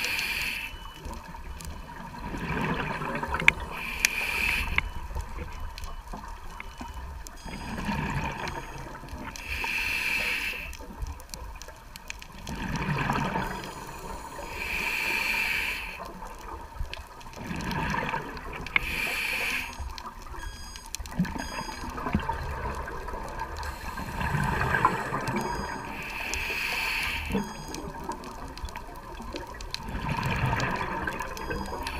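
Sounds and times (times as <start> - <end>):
regulator inhale hiss: 0.0 - 0.8, 3.7 - 4.9, 9.4 - 10.8, 13.9 - 16.1, 18.8 - 19.9, 25.9 - 27.4
exhaled bubbles rushing: 2.0 - 3.8, 12.4 - 14.2, 17.3 - 18.7, 21.2 - 26.0, 27.8 - 31.8.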